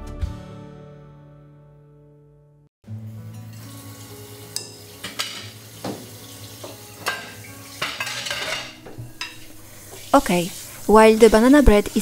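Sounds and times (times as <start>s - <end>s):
dishes and glassware clinking: 4.6s - 9.5s.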